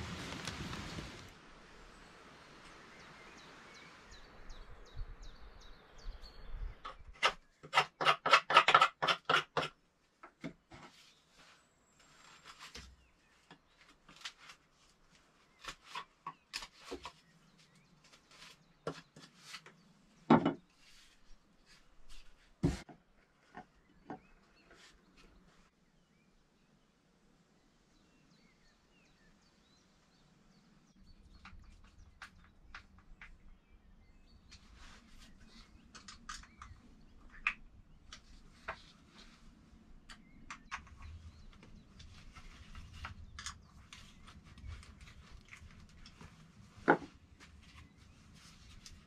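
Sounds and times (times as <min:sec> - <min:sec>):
knife carving wood: 0:06.9 - 0:09.8.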